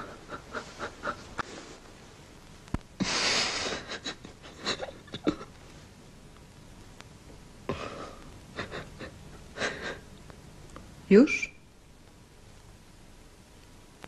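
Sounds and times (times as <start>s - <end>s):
small clicks and rustles: 1.4s - 3.0s, 5.2s - 7.4s.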